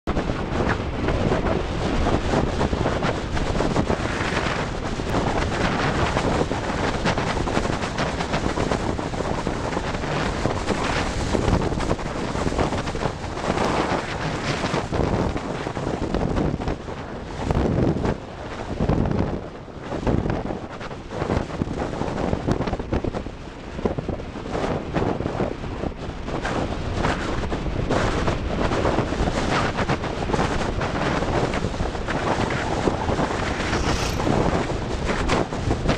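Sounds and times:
wind rushing over microphone: 0:00.0 - 0:35.9.

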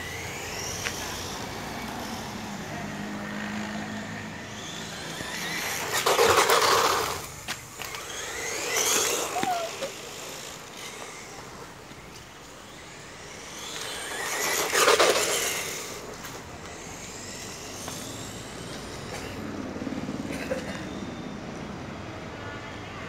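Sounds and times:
tyre noise on asphalt: 0:00.0 - 0:02.3, 0:04.5 - 0:19.5
electric motor whine: 0:00.0 - 0:20.2.

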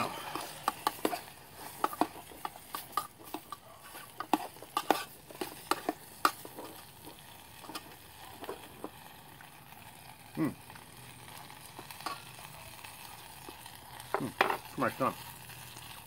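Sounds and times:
meat sizzling: 0:00.0 - 0:16.0.

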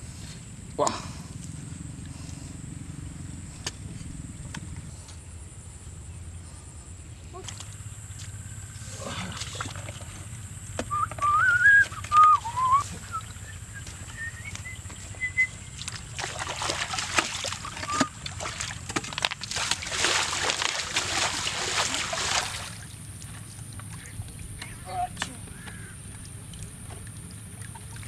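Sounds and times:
water splashing in a pool: 0:07.4 - 0:10.5, 0:11.4 - 0:28.0
wavering whistle: 0:10.9 - 0:15.7, 0:17.8 - 0:18.2
bucket swished in water: 0:15.0 - 0:22.9.

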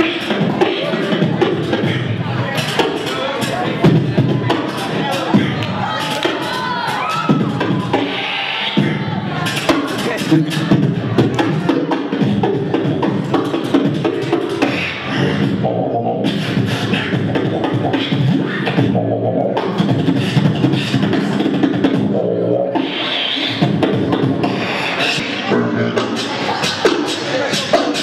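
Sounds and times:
beatboxing: 0:00.0 - 0:28.0.

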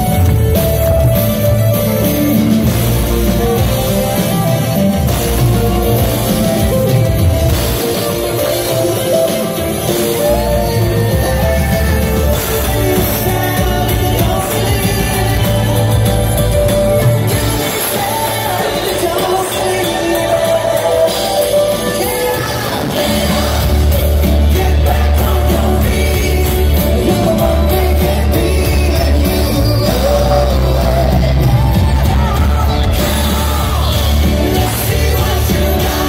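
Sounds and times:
live rock band playing: 0:00.0 - 0:36.0
lead vocals singing: 0:10.5 - 0:36.0.

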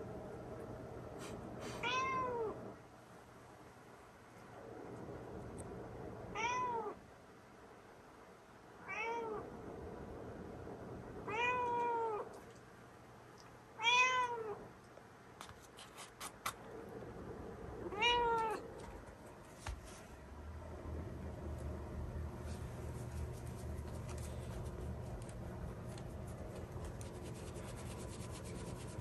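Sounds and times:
cat meowing: 0:01.8 - 0:02.6, 0:06.4 - 0:07.0, 0:08.8 - 0:09.5, 0:11.3 - 0:12.4, 0:13.8 - 0:14.6, 0:17.9 - 0:18.6.

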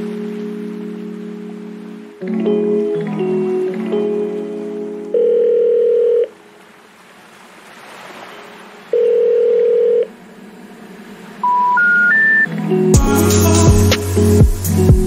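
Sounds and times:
telephone ringback beep: 0:05.1 - 0:06.4, 0:09.0 - 0:10.1, 0:11.4 - 0:12.5
rising three-tone signal: 0:11.4 - 0:13.8.

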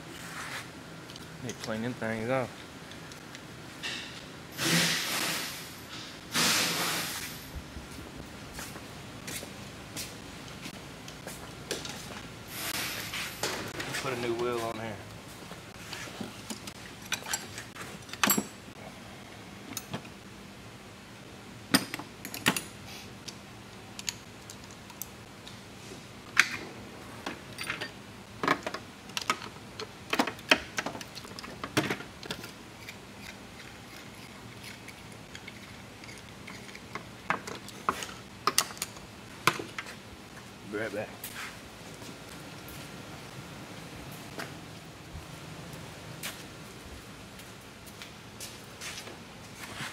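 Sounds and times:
metal tools clinking in drawer: 0:17.0 - 0:18.6, 0:27.5 - 0:28.0.

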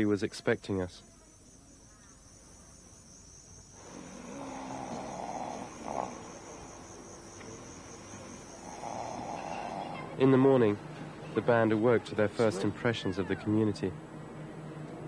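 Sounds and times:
faint chirps: 0:00.4 - 0:10.2
person snoring: 0:03.8 - 0:06.5, 0:08.6 - 0:10.0.

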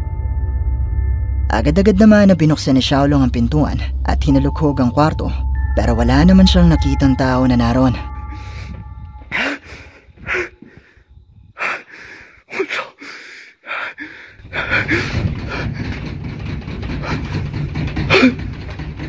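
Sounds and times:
low rumble: 0:00.0 - 0:11.6
person breathing in sharp gasps: 0:11.6 - 0:14.9.

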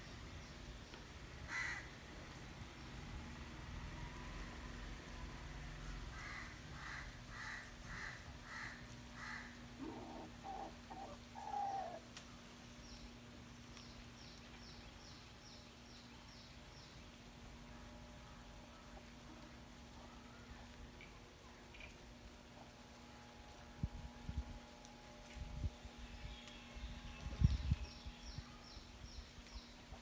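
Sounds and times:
birds calling: 0:00.0 - 0:02.0, 0:06.1 - 0:12.1
steady low hum: 0:00.0 - 0:30.0.

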